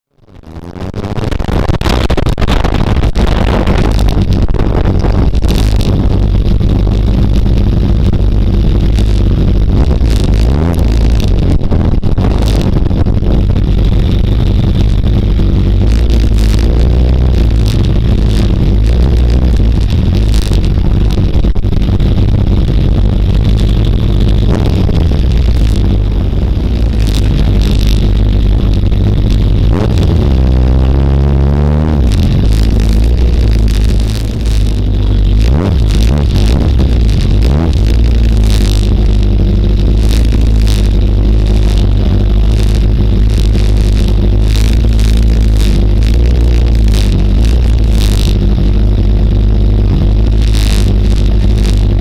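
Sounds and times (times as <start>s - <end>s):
motorcycle engine revving: 0.1s - 52.0s.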